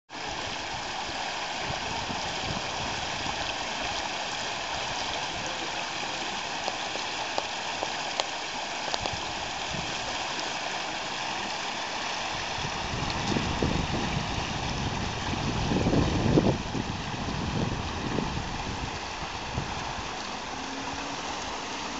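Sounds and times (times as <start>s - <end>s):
muddy water gushing: 0.1s - 21.9s
faint ticks: 6.6s - 9.2s.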